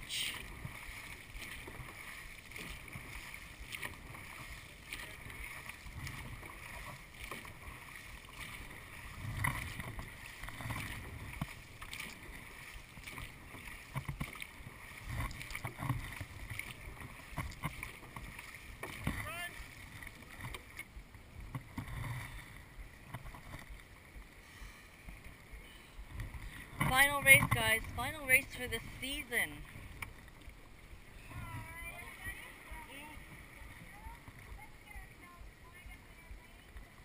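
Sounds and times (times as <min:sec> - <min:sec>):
paddles splashing in water: 0:00.0 - 0:37.0
water rushing past boat: 0:00.0 - 0:37.0.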